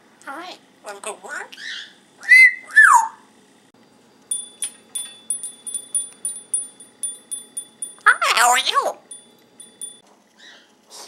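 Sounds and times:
parrot whistling: 1.8 - 3.2
small cage bell ringing: 4.3 - 10.0.

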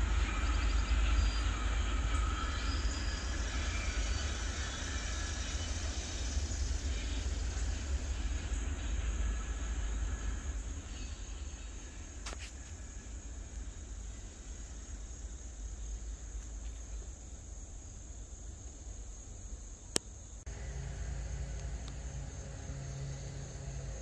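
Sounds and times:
low rumble: 0.0 - 16.6, 20.5 - 24.0
insects chirring: 0.0 - 24.0.

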